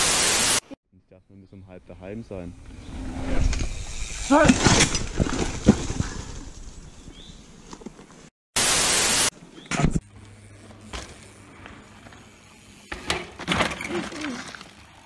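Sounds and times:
static hiss burst: 0.0 - 0.8, 8.6 - 9.3
mountain bike clattering on dirt trail: 3.4 - 8.1, 9.6 - 15.0.

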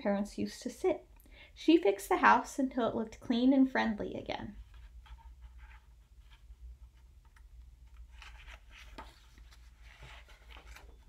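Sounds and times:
paper pages turning: 4.6 - 11.0.

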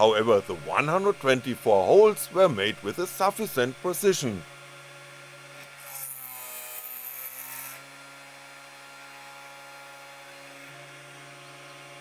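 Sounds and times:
drill bit rasping through board: 5.6 - 8.0.

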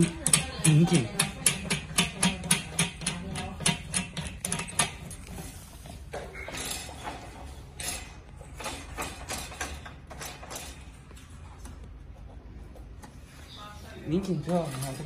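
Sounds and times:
clicks and knocks on metal gate: 0.0 - 5.5, 6.1 - 11.0.

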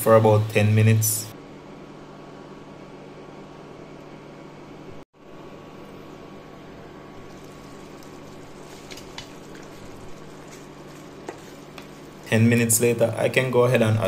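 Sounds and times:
food simmering in pot: 5.9 - 12.3.

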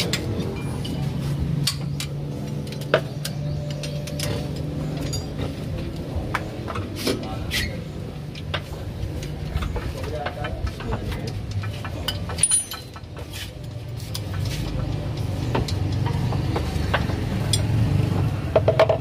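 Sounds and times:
hand tools knocking on metal: 9.4 - 13.3, 14.2 - 19.0.

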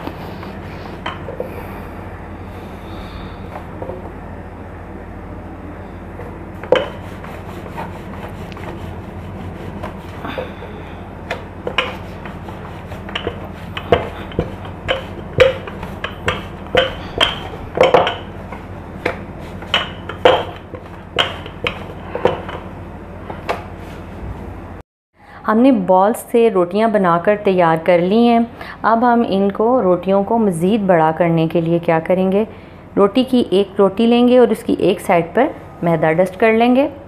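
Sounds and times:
steady low hum: 0.0 - 37.0
rolling pin knocking on board: 13.0 - 18.3, 19.0 - 22.6.

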